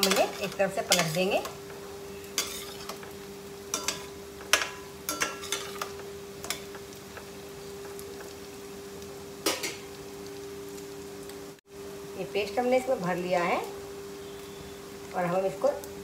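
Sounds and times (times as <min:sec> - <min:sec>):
metal utensil clinking on pan: 0:00.0 - 0:01.5, 0:02.4 - 0:03.0, 0:03.7 - 0:06.7
food sizzling in hot oil: 0:00.0 - 0:16.0.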